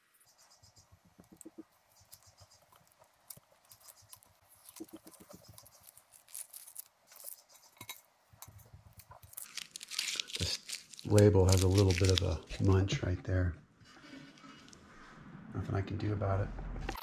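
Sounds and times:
masking tape being peeled: 1.3s - 7.8s, 8.9s - 12.7s.

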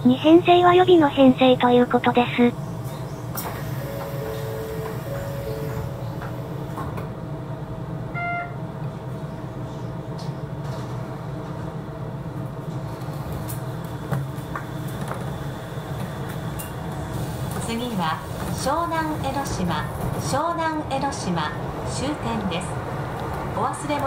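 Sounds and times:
monorail car humming: 0.0s - 24.0s
short beep: 8.2s - 8.6s.

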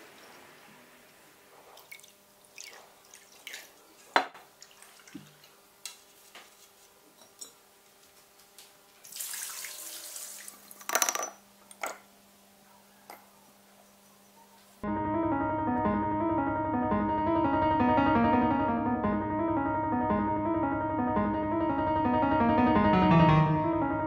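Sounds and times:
water dripping and splashing: 1.6s - 6.0s, 9.0s - 10.7s
glassware clicking: 10.8s - 12.1s.

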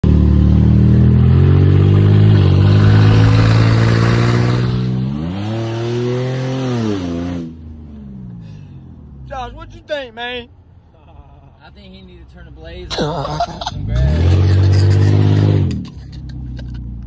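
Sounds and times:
car engine accelerating: 0.0s - 8.6s, 13.2s - 17.0s.

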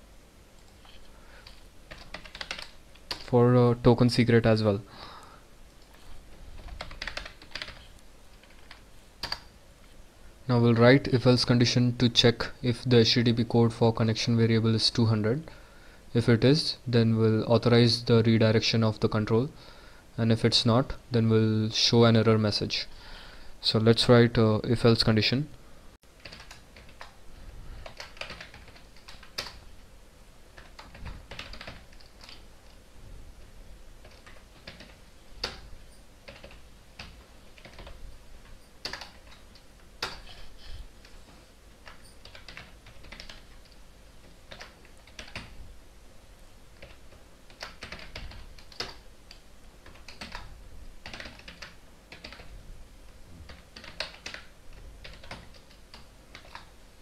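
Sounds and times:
keyboard typing clicks: 1.4s - 3.3s, 6.7s - 9.5s, 36.3s - 40.4s, 41.8s - 45.6s, 46.8s - 52.5s, 53.5s - 56.7s.

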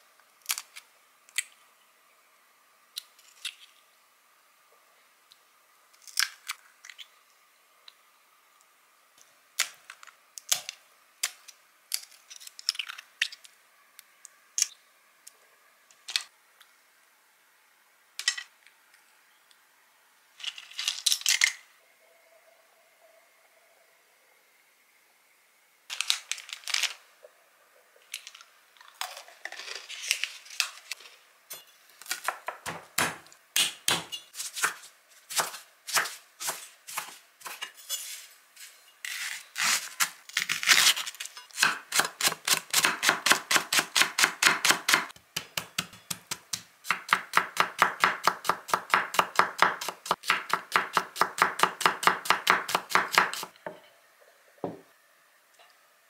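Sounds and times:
knife chopping on wooden board: 32.2s - 37.6s.

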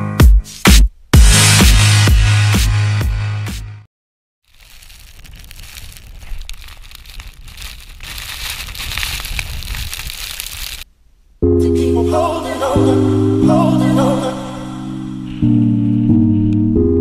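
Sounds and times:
snow hissing under skis: 4.6s - 10.8s
wind buffeting microphone: 5.4s - 10.8s.

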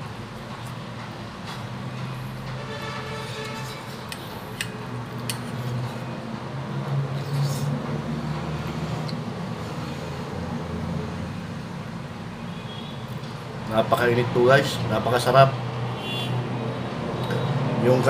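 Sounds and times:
man chewing food: 3.7s - 6.1s.

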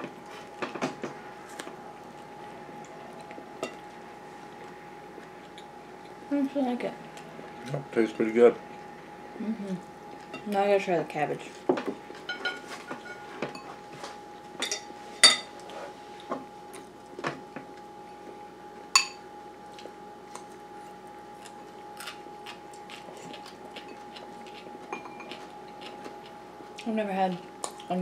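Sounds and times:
faint steady hum: 0.0s - 28.0s
forks clinking on ceramic bowls: 12.3s - 13.7s, 14.6s - 15.5s, 24.9s - 25.4s.

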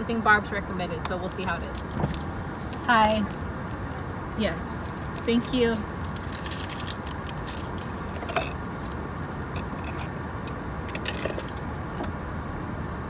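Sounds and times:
steady hum inside car: 0.0s - 13.0s
paper receipt rustling: 4.8s - 9.6s.

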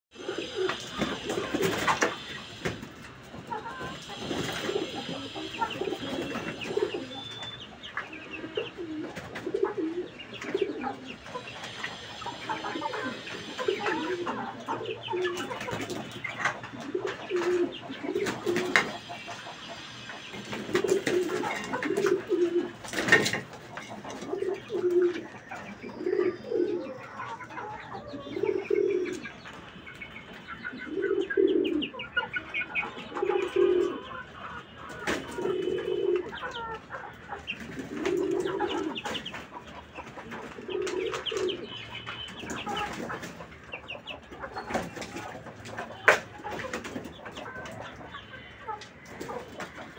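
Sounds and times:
pigeons cooing: 0.1s - 49.9s
bird chirps: 3.6s - 22.6s, 24.3s - 36.7s, 37.5s - 45.1s.

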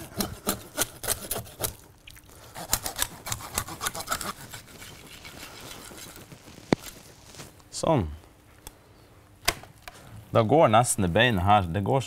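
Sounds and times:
serrated knife sawing through bones: 2.4s - 6.2s.

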